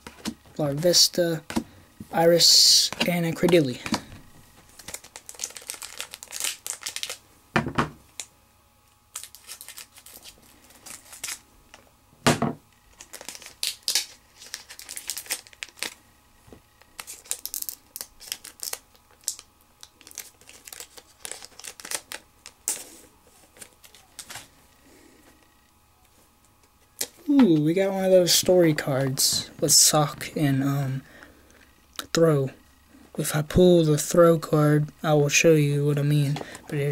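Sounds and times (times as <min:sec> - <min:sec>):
wrapper tearing and crinkling: 0:04.7 - 0:07.2, 0:09.1 - 0:11.4, 0:12.9 - 0:16.0, 0:16.8 - 0:24.5.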